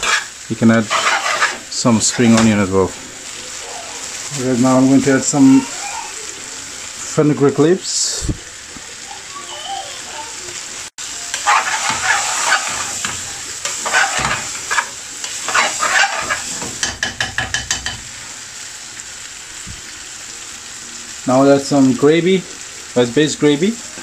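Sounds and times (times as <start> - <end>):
metal spoon scraping a pan: 0.0 - 2.6, 11.3 - 18.1
curry sizzling in a frying pan: 0.0 - 24.0.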